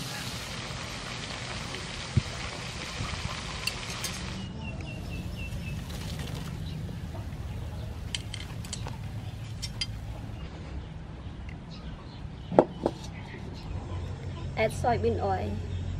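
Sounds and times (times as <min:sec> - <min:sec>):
steady hiss: 0:00.0 - 0:04.5.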